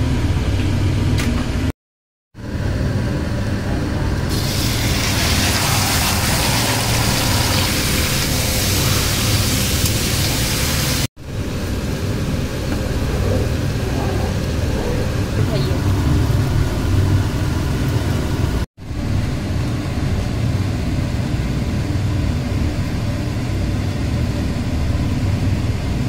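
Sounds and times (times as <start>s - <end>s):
food sizzling in hot oil: 4.3s - 11.1s.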